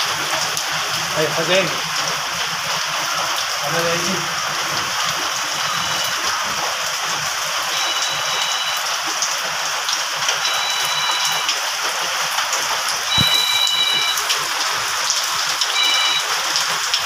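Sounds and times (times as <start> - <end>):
heavy rain on a metal roof: 0.0 - 17.0
thin high steady tone: 7.7 - 8.9, 13.1 - 14.3.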